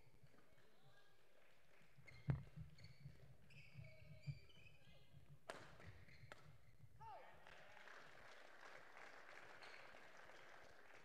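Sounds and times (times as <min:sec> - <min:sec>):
shoe squeaks on court floor: 0:02.0 - 0:05.2, 0:05.8 - 0:06.7.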